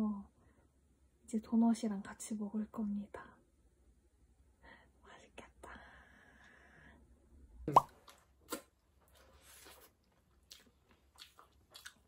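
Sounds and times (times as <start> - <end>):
chewing clicks and smacks: 10.4 - 12.0.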